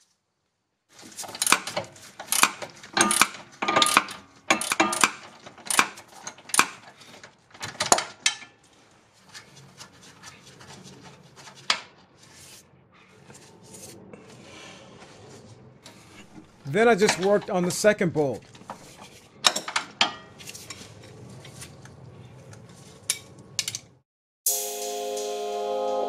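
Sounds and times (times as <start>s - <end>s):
metal tools clinking: 1.3s - 6.7s.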